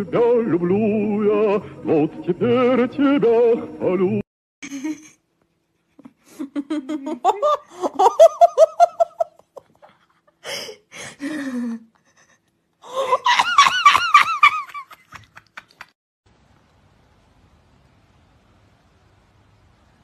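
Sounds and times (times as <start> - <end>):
person laughing high-pitched: 4.6 - 5.2, 5.8 - 10.7, 12.0 - 15.9
person gasping: 10.4 - 13.2.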